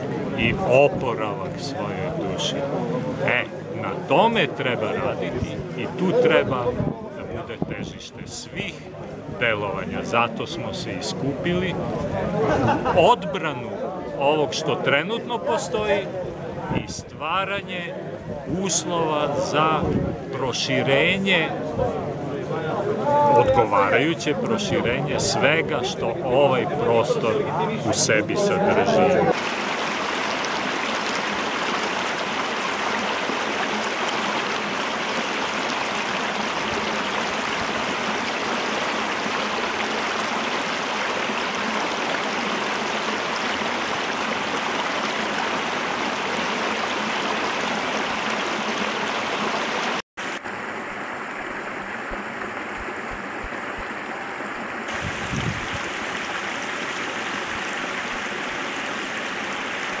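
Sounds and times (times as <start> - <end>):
stream rushing over rocks: 29.3 - 60.0.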